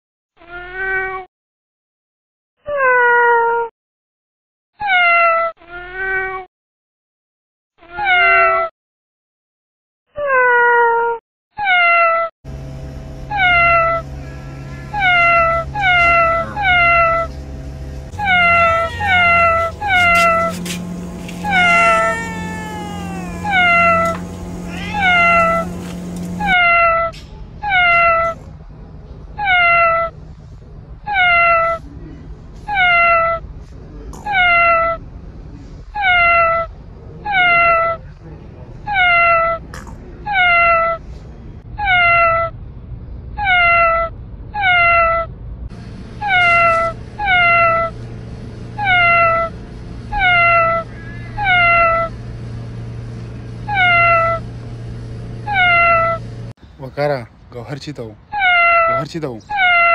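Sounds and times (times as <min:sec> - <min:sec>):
cat meowing: 0:00.5 - 0:01.3, 0:04.8 - 0:06.5, 0:07.9 - 0:08.7, 0:11.6 - 0:12.3, 0:13.3 - 0:14.0, 0:14.6 - 0:17.3, 0:18.2 - 0:28.4, 0:29.4 - 0:30.1, 0:31.1 - 0:31.8, 0:32.7 - 0:33.4, 0:34.3 - 0:35.0, 0:36.0 - 0:38.0, 0:38.9 - 0:39.6, 0:40.2 - 0:41.0, 0:41.8 - 0:42.5, 0:43.4 - 0:45.3, 0:46.2 - 0:47.9, 0:48.8 - 0:49.5, 0:50.1 - 0:50.8, 0:51.4 - 0:52.1, 0:53.7 - 0:54.4, 0:55.5 - 0:56.2, 0:58.3 - 0:59.9
low steady hum: 0:12.5 - 0:31.0.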